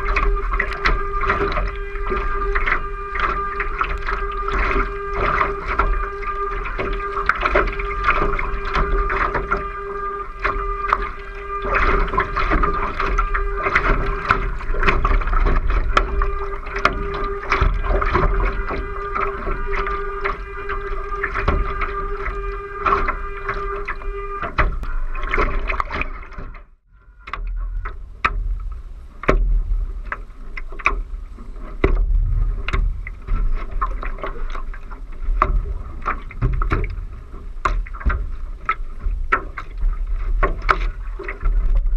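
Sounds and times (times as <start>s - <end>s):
steady hum: 0.0s - 41.9s
water rushing along a hull: 0.0s - 41.9s
wind on microphone: 27.4s - 41.9s.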